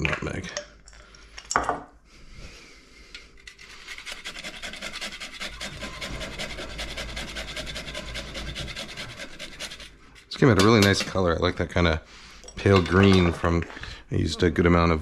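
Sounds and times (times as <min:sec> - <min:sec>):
nutmeg scraping on grater: 0:03.4 - 0:11.1.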